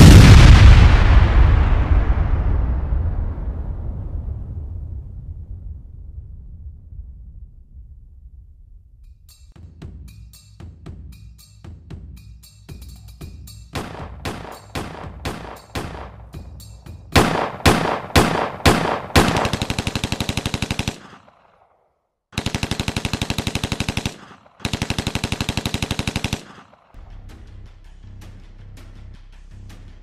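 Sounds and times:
machine-gun bursts: 13.8s - 16.2s, 17.2s - 21.5s, 22.4s - 27.0s
single gunshots: 13.8s - 16.3s, 17.1s - 21.6s.

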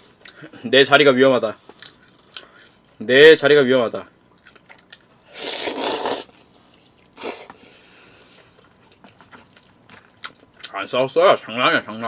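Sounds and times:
faint chewing: 1.6s - 3.0s, 4.2s - 10.8s
noodles slurped: 4.6s - 7.7s.

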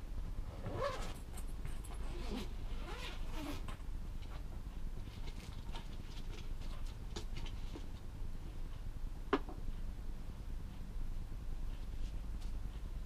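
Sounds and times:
low room hum: 0.0s - 13.0s.

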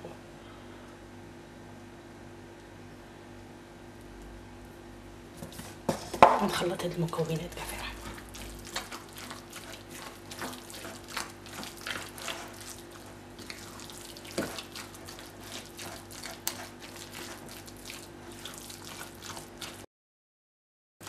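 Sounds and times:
faint steady hum: 0.0s - 19.7s
spatula squelching wet filling: 5.4s - 19.9s.

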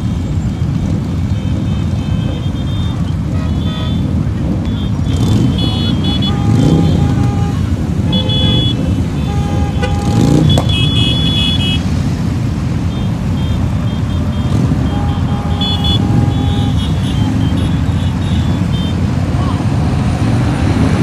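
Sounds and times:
motorcycle engine revving: 0.0s - 21.0s
motorcycle engines rumbling: 0.0s - 21.0s
short horn toots: 5.1s - 11.8s.

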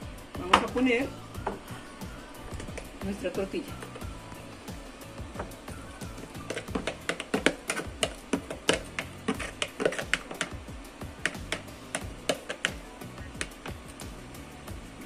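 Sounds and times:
background music: 0.0s - 15.0s
wooden spoon scraping a bowl: 6.2s - 10.5s.

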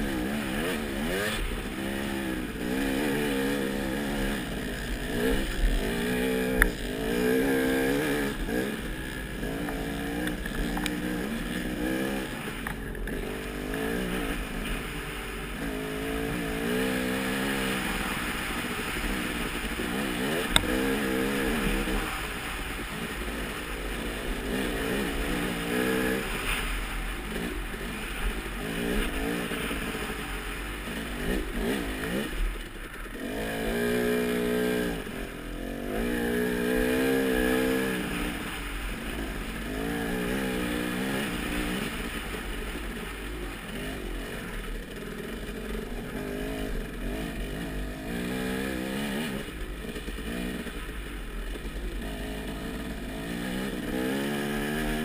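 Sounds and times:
rushing noise with clatter: 0.0s - 36.2s
motorcycle engine revving: 0.0s - 55.0s.

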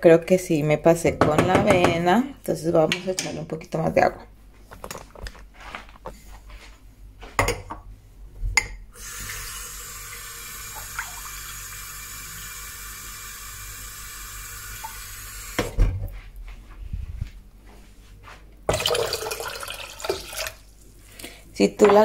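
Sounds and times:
tap water filling a mug: 9.3s - 12.9s, 18.7s - 20.6s.

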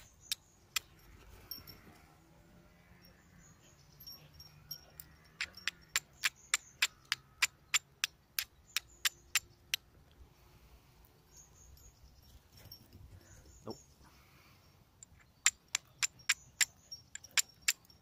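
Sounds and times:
flint and steel striking clicks: 0.0s - 1.6s, 4.7s - 10.2s, 15.0s - 18.0s.

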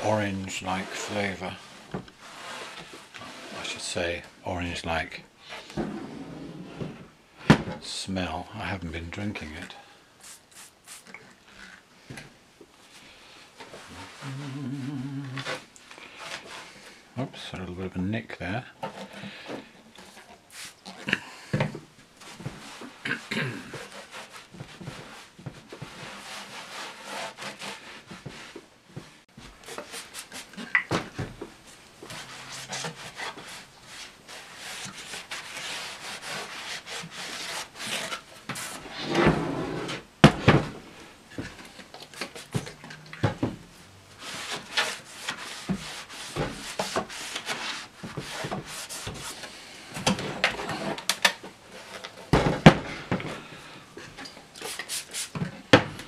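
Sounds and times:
cloth wiping a cabinet: 13.7s - 16.8s, 29.3s - 40.0s, 44.1s - 49.5s
cabinet knocks and thumps: 40.2s - 40.8s, 52.3s - 53.3s.

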